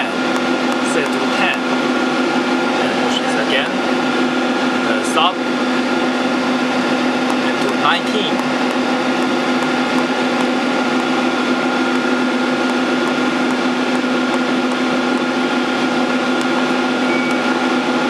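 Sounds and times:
machinery humming: 0.0s - 18.0s
faint high whine: 17.0s - 17.7s.

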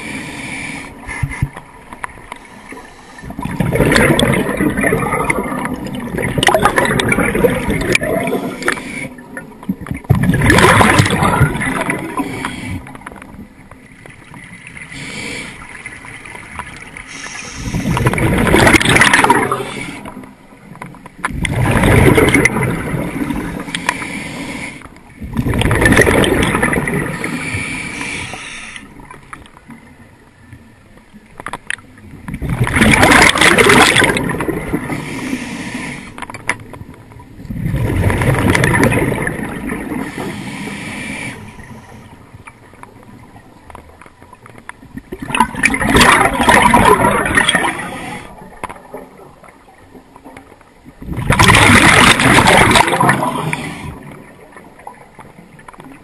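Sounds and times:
diver exhaling bubbles underwater: 3.2s - 8.9s, 10.0s - 12.8s, 17.6s - 20.2s, 21.3s - 23.6s, 25.2s - 27.6s, 32.4s - 35.1s, 37.5s - 40.3s, 45.1s - 48.2s, 51.0s - 54.2s.

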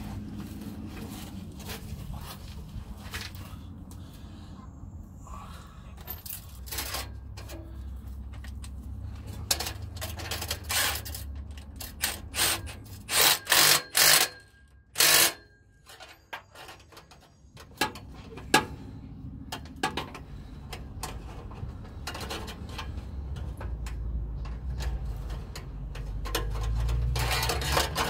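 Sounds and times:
metal clicks and knocks: 19.4s - 28.0s.

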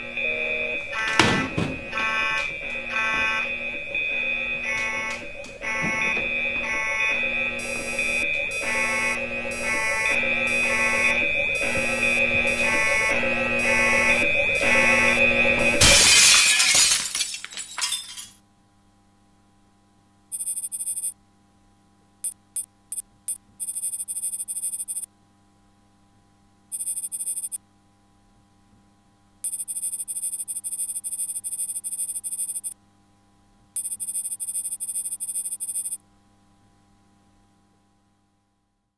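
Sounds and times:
electronic alarm pulsing: 0.0s - 15.8s, 20.3s - 21.2s, 22.2s - 25.1s, 26.7s - 27.6s, 29.4s - 32.8s, 33.8s - 36.0s
steady electronic tone: 0.0s - 15.8s, 20.3s - 21.2s, 22.2s - 25.1s, 26.7s - 27.6s, 29.5s - 32.8s, 33.8s - 36.0s
high electronic chirping: 20.3s - 21.2s, 22.6s - 25.1s, 26.7s - 27.6s, 29.5s - 32.8s, 33.8s - 36.0s.

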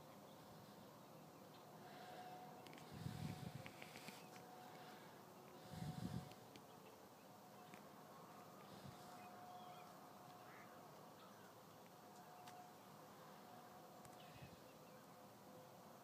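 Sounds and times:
distant bird chirps: 0.1s - 15.8s.

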